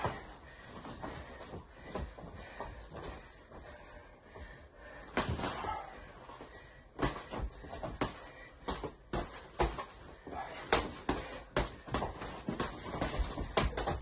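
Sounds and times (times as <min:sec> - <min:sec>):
boxing gloves thudding: 0:05.1 - 0:05.9, 0:07.0 - 0:14.0.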